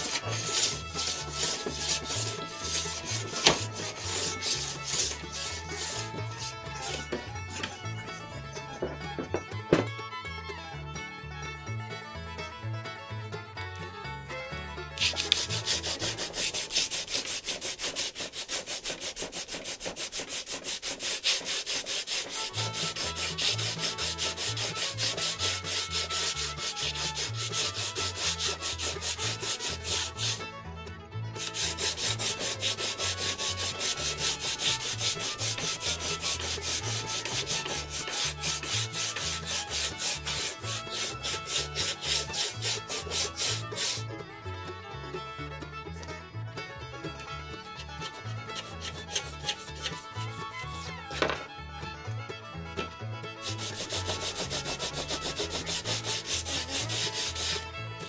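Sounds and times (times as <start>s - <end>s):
sandpaper rubbing back and forth: 0.0s - 7.7s, 15.0s - 30.4s, 31.4s - 44.0s, 48.0s - 51.2s, 53.4s - 57.7s.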